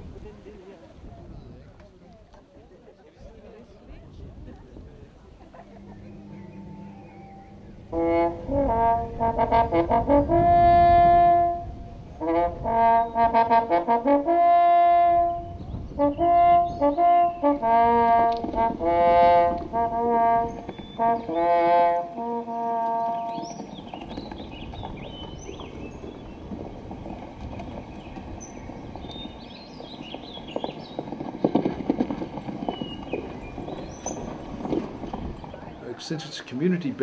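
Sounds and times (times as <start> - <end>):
brass horn fanfare: 6.1 - 23.8.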